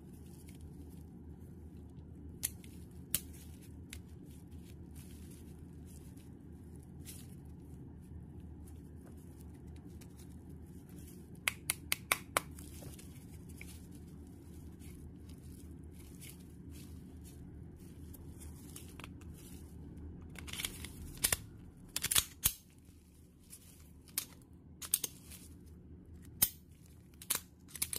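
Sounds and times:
low hum: 0.0s - 11.8s, 12.4s - 27.9s
pistol parts clicking: 20.4s - 22.6s.

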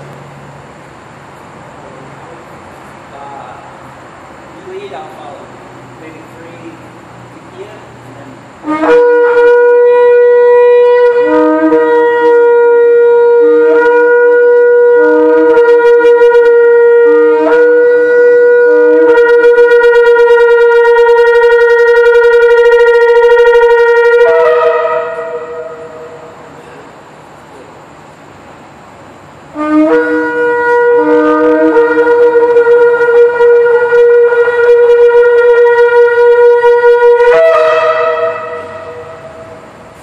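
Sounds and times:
shofar holding long note: 8.6s - 26.7s, 29.5s - 40.0s
shofar short low blasts: 8.6s - 26.8s, 29.5s - 40.0s.

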